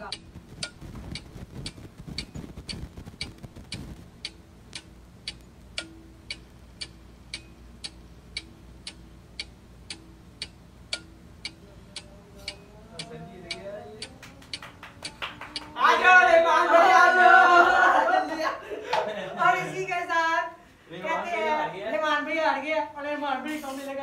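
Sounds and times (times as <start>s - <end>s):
clock ticking: 0.0s - 15.8s.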